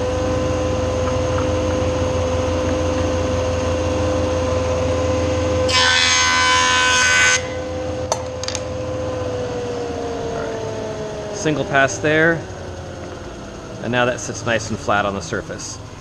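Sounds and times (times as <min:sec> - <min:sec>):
jointer humming: 0:00.0 - 0:16.0.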